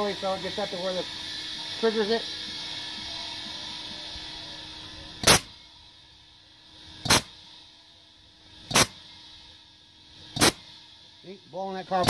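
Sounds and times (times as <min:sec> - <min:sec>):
air hiss: 0:00.0 - 0:12.0
compressed air blasts popping: 0:05.2 - 0:05.5, 0:07.0 - 0:07.4, 0:08.6 - 0:09.0, 0:10.2 - 0:10.8.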